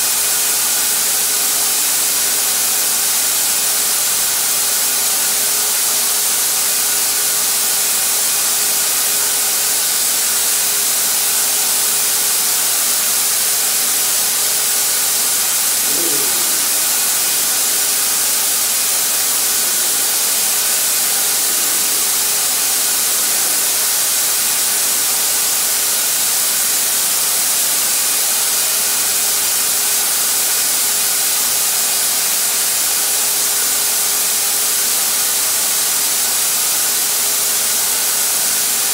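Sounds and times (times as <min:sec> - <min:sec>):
air rushing from spray gun: 0:10.6 - 0:26.6
turbine whine: 0:11.5 - 0:25.8.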